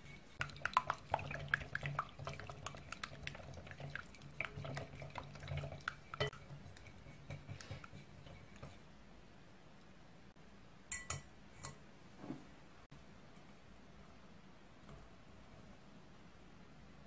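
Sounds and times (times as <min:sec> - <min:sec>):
wet swishing of whisked eggs: 0:00.0 - 0:09.0
whisk clinking against glass bowl: 0:03.9 - 0:08.7.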